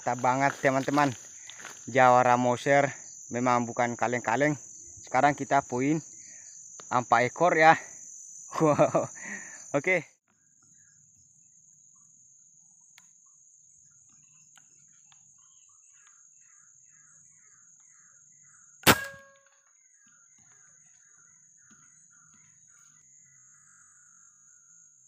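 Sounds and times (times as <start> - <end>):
high-pitched insect whine: 0.0 - 25.0
air rifle shot: 18.8 - 19.4.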